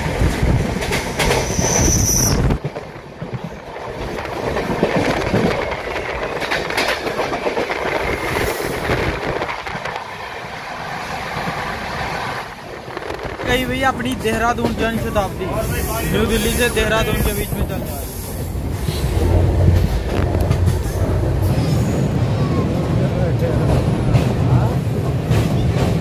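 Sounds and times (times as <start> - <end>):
passing train rumble: 0.0 - 26.0
train wheels clattering over joints: 0.2 - 10.0.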